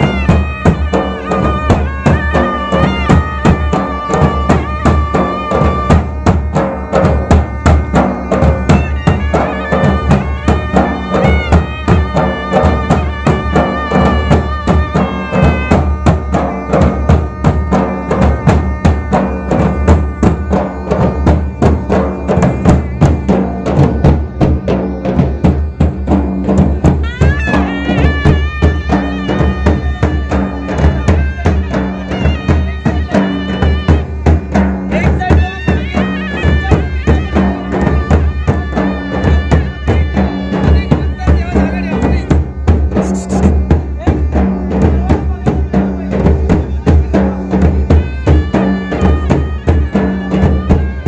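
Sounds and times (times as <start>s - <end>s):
high wavering melody: 0.0s - 34.6s, 46.9s - 51.0s
dhol drum beating: 0.0s - 51.0s.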